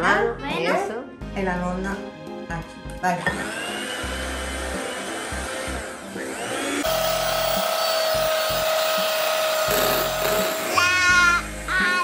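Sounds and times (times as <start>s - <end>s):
electric hand mixer whine: 3.3s - 11.6s.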